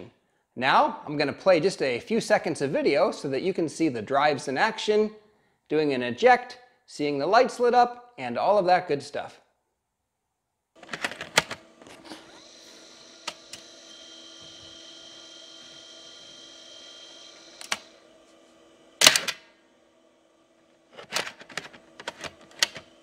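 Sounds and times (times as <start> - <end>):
drive whirring and whining: 10.8 - 23.0
disk clicking into drive: 17.5 - 17.9.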